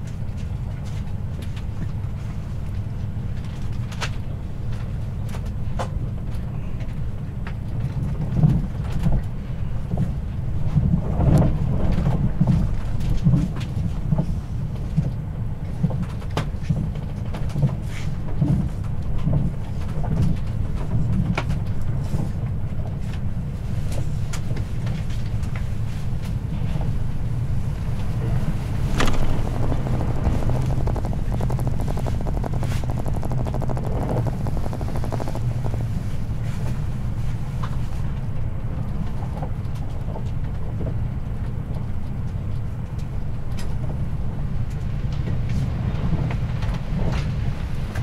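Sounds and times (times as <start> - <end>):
train low rumble: 0.0 - 48.0
wheels clicking on rails: 23.1 - 38.0.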